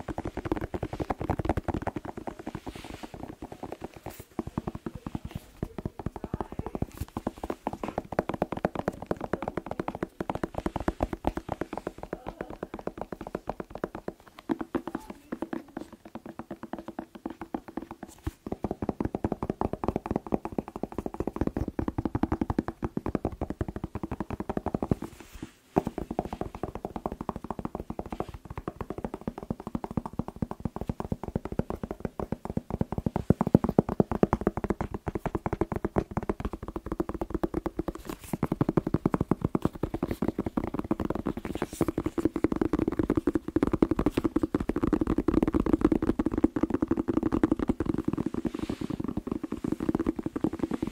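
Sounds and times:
fingertips tapping on bell pepper: 0.0s - 25.2s, 25.8s - 50.9s.

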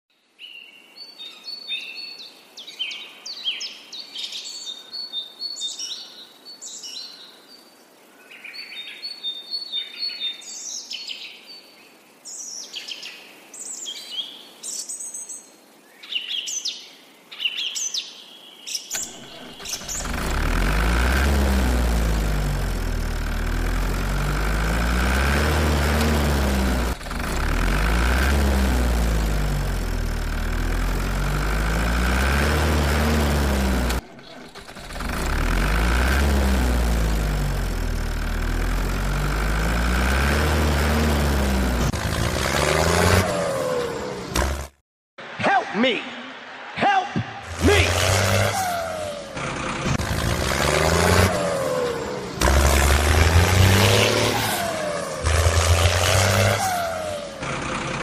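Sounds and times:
birds chirping: 0.4s - 35.3s
loud tractor engine: 19.0s - 44.8s, 47.4s - 58.0s.

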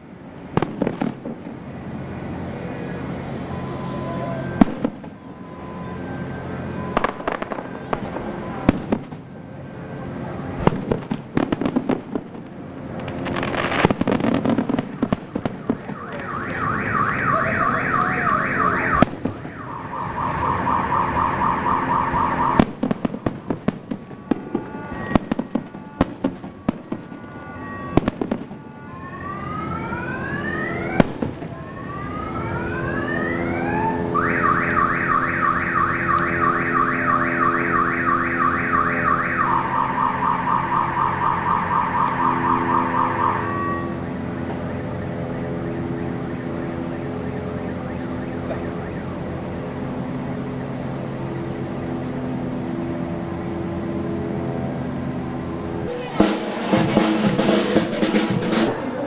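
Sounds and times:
fireworks bangs and crackles: 0.1s - 59.0s
car alarm warbling and whooping: 2.9s - 8.8s, 14.4s - 23.4s, 24.0s - 28.1s, 31.7s - 49.3s.

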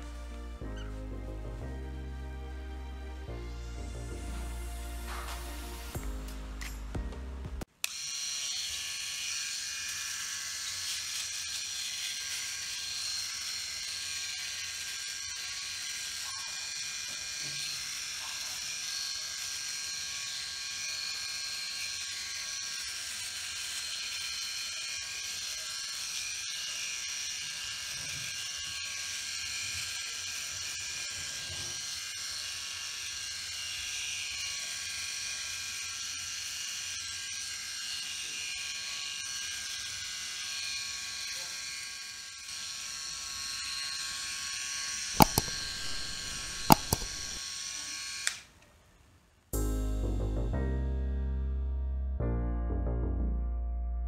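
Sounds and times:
electric shaver buzzing: 2.7s - 6.8s, 7.8s - 48.5s.

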